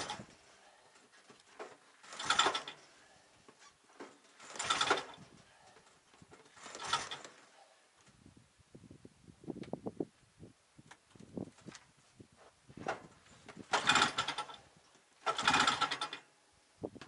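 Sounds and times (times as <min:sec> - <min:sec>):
engine pull-starter whirring: 0:00.0 - 0:03.0, 0:03.6 - 0:07.6, 0:12.9 - 0:16.3.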